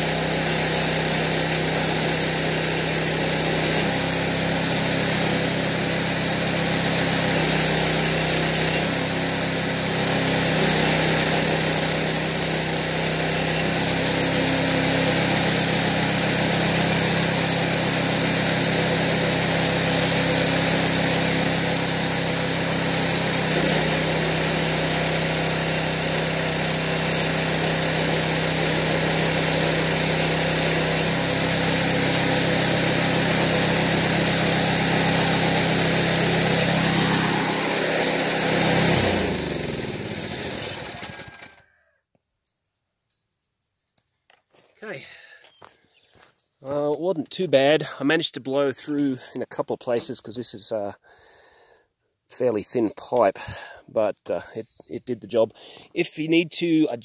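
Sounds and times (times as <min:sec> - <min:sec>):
welding arc burning: 0:00.0 - 0:41.4
alternator humming: 0:08.3 - 0:41.6.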